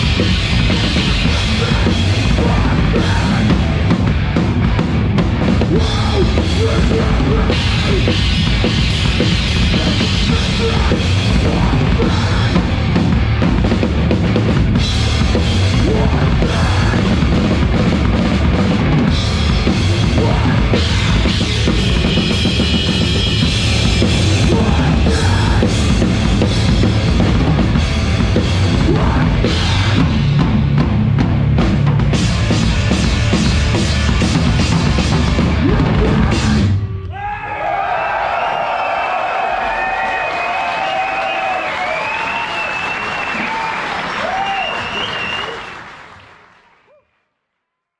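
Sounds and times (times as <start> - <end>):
drum kit played fast: 0.0 - 37.0
heavy rock band playing: 0.0 - 37.2.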